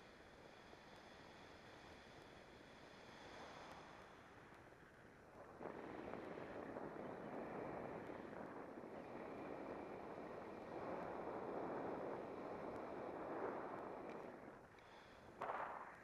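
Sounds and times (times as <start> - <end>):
wind rushing over microphone: 5.4 - 14.6.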